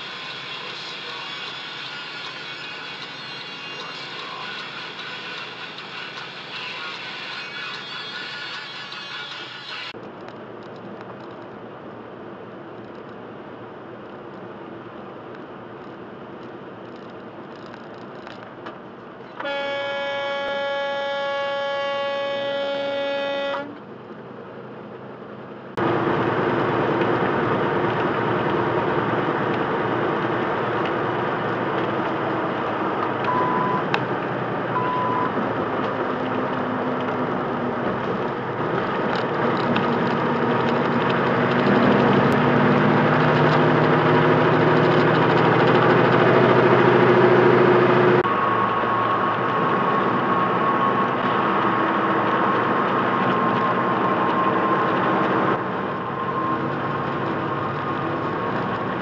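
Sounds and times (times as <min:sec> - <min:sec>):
truck cab engine and tyre noise: 0:00.0 - 0:59.0
truck air horn blast: 0:19.4 - 0:23.8
short warning beeps: 0:33.3 - 0:33.9, 0:34.8 - 0:35.3.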